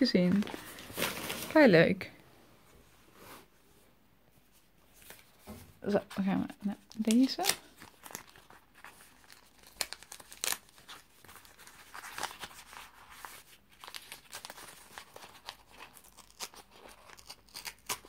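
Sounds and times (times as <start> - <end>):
wrapping paper tearing and crinkling: 0.4 - 1.6, 6.9 - 18.0.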